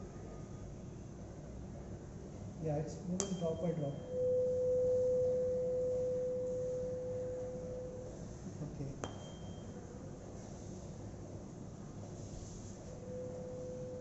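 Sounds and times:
tuning fork tap: 3.2s - 5.5s, 9.0s - 9.8s
tuning fork ringing tone: 3.2s - 8.3s, 9.0s - 10.0s, 13.0s - 14.0s.

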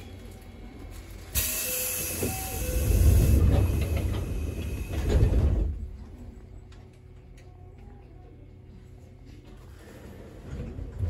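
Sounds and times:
electric train rumble and hiss: 0.0s - 6.5s.

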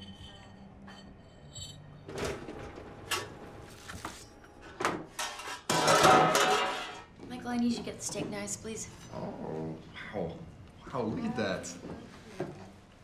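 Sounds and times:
oven door and pan clattering: 4.7s - 7.1s.

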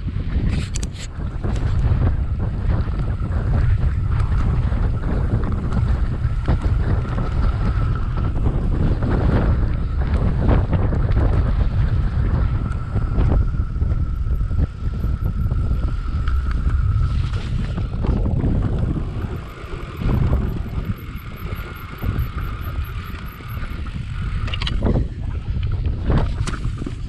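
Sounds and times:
mountain bike rumbling and rattling: 0.0s - 27.0s
wind buffeting microphone: 0.0s - 27.0s
faint steady whine: 1.0s - 27.0s.

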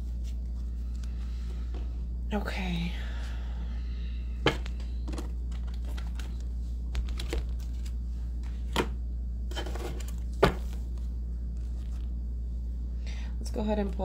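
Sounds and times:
steady low hum: 0.0s - 14.0s
card rustle: 5.0s - 8.8s.

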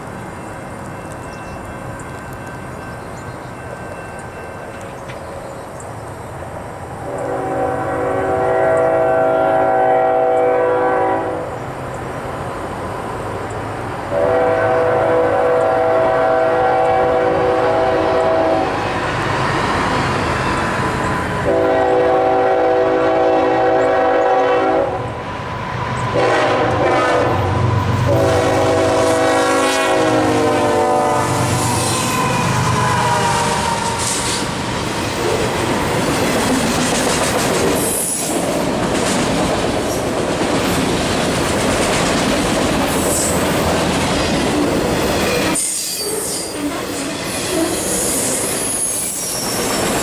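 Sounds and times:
diesel locomotive rumble: 0.0s - 45.6s
locomotive air horn blasts: 7.0s - 11.5s, 14.1s - 18.8s, 21.4s - 25.1s, 26.2s - 34.4s.

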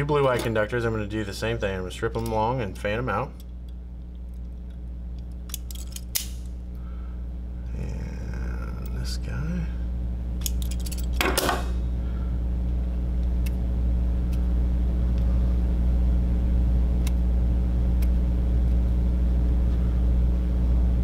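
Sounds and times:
steady low hum: 0.0s - 21.0s
wire stripper snapping: 3.4s - 6.6s, 10.4s - 11.8s.

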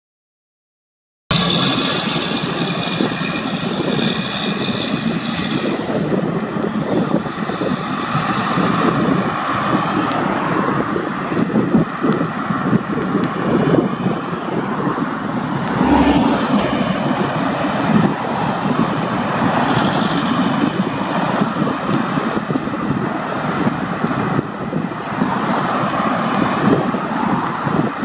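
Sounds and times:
road traffic passing: 1.3s - 28.0s
wind buffeting microphone: 1.3s - 28.0s
heavy truck passing: 15.2s - 21.7s.

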